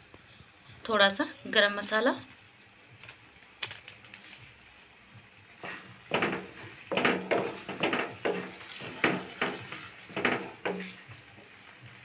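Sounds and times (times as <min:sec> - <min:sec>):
wooden spatula scraping a pan: 0:05.6 - 0:11.8.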